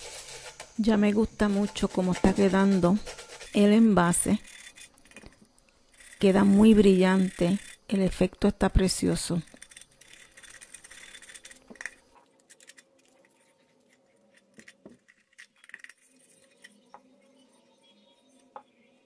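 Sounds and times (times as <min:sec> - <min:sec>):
sandpaper scratching metal tin: 0:00.0 - 0:07.9, 0:09.0 - 0:12.0.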